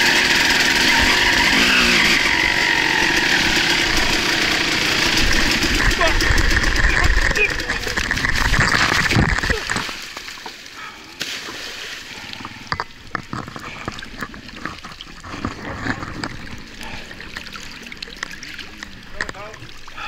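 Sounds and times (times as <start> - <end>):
water splashing and sloshing: 2.1 - 20.0
water trickling: 11.4 - 20.0.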